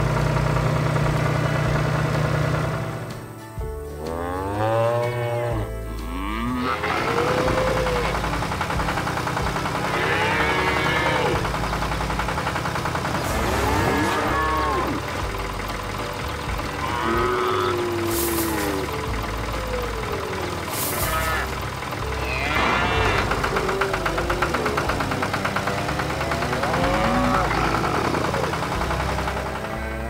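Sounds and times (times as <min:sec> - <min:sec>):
tractor engine humming: 0:00.0 - 0:30.0
cows mooing: 0:04.0 - 0:08.4, 0:09.7 - 0:11.6, 0:13.2 - 0:15.3, 0:16.6 - 0:29.0.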